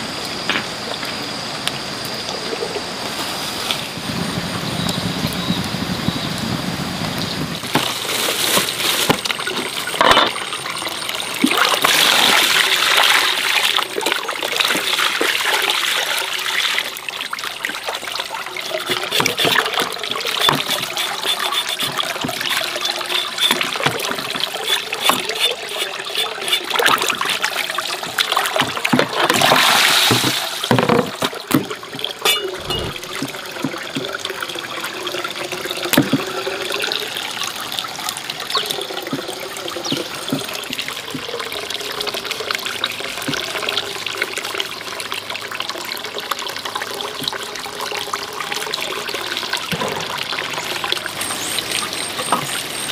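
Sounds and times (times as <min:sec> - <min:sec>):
water running and splashing: 0:06.6 - 0:52.9
small knocks and clatter: 0:28.0 - 0:34.1.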